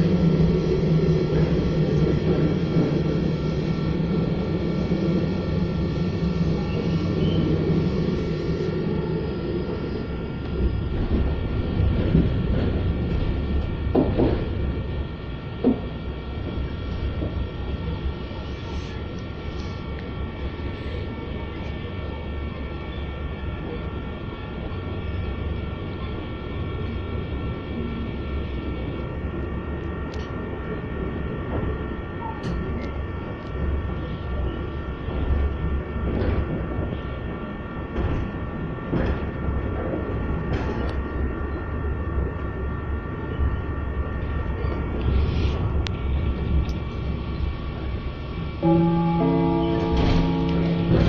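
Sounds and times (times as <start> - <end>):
hum of held tones: 0.0 - 12.6, 40.9 - 51.0
train rumbling: 0.0 - 51.0.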